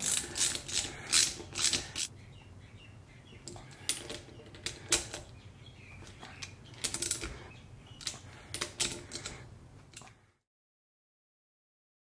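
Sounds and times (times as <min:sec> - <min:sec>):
spanner clicking on metal bolts: 0:06.4 - 0:07.3, 0:08.0 - 0:09.4.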